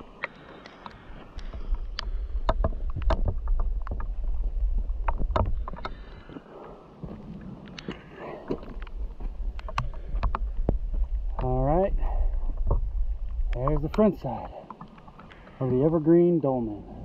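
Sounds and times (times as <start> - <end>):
footsteps on gravel: 4.2 - 10.1
heavy low rumble: 8.3 - 14.6.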